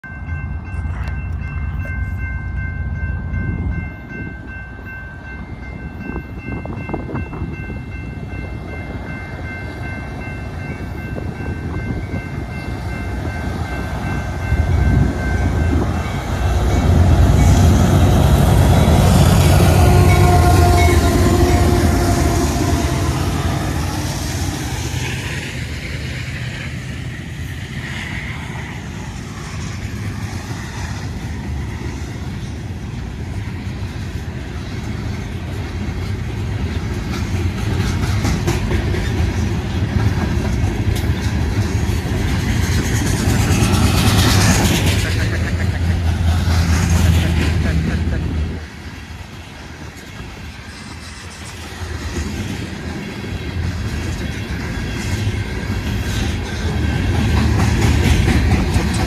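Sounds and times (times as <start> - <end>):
diesel locomotive engines: 0.0 - 59.0
freight cars rumbling on rails: 0.0 - 59.0
train horn: 19.2 - 24.2.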